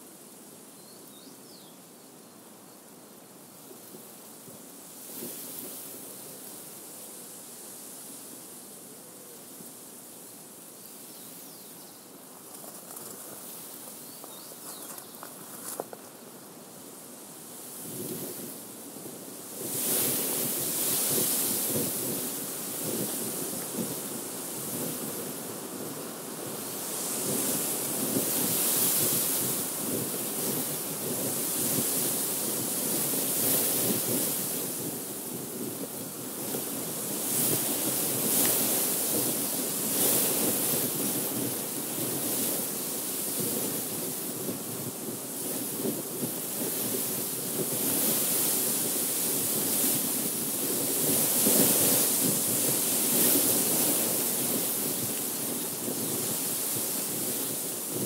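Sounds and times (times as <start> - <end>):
wind rustling through wheat: 0.0 - 58.0
faint high bird chirps: 0.8 - 1.8, 14.1 - 15.3.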